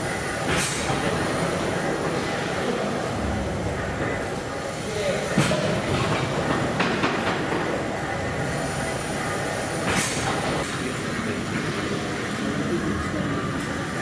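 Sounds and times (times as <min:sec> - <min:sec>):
steam engine churning and hissing: 0:00.0 - 0:14.0.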